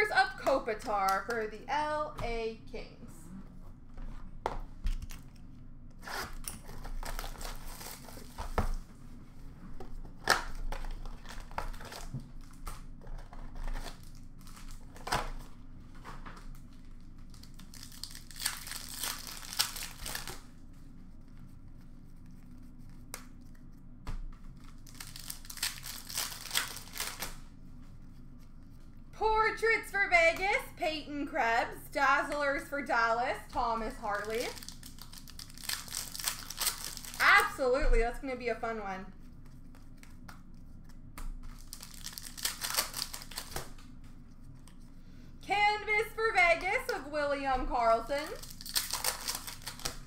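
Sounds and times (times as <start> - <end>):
wrappers tearing and crinkling: 6.0 - 8.6, 10.1 - 20.6, 24.5 - 27.5, 34.0 - 37.6, 41.4 - 43.9, 48.2 - 50.0.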